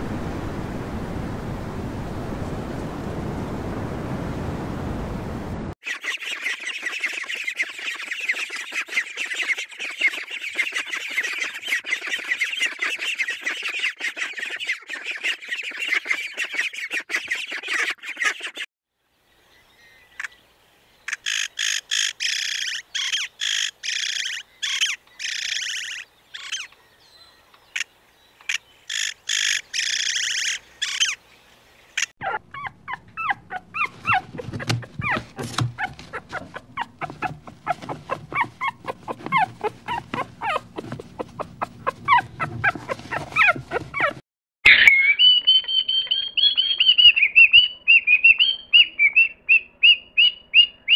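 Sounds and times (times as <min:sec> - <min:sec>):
bird high calls: 0:05.8 - 0:18.7, 0:21.1 - 0:31.2, 0:35.8 - 0:44.1, 0:44.7 - 0:50.9
puppies whimpering and yipping: 0:32.2 - 0:46.1.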